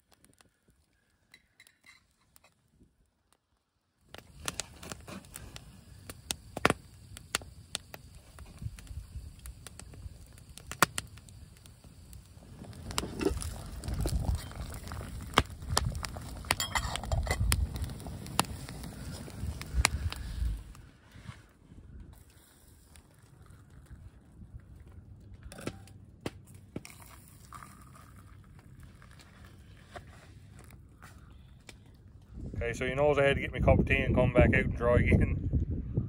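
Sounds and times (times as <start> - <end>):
campfire crackling and popping: 0.0 - 34.3
wind rumble on microphone: 12.2 - 22.2, 32.2 - 36.0.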